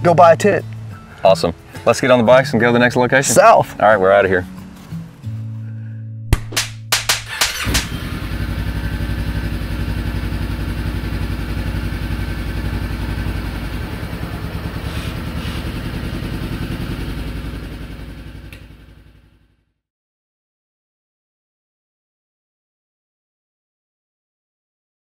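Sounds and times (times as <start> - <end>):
motorcycle engine running: 7.2 - 19.8.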